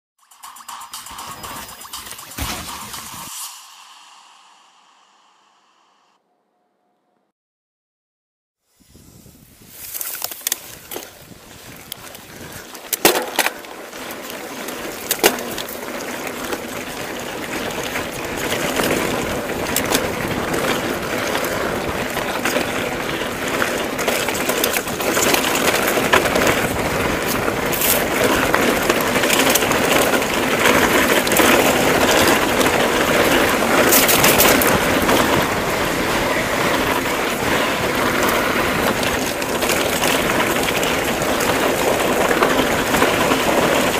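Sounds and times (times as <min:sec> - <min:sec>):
bike tyres rolling on dirt: 0:09.4 - 0:43.9
bike knocking and rattling: 0:09.8 - 0:43.9.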